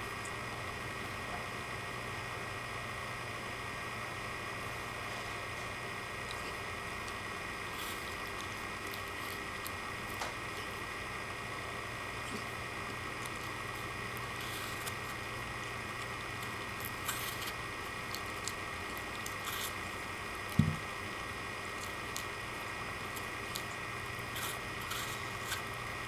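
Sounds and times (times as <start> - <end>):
steady background hum: 0.0 - 26.0
dog crunching an apple: 6.3 - 10.8, 12.2 - 20.8
loud thump: 20.6 - 20.8.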